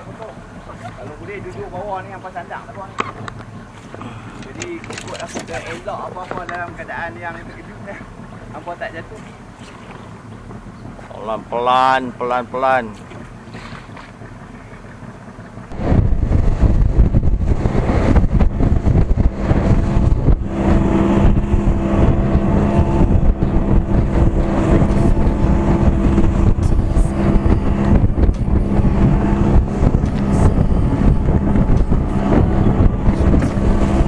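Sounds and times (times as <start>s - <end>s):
boat engine humming: 0.0s - 34.0s
water rushing against hull: 0.0s - 34.0s
wind buffeting microphone: 12.8s - 34.0s.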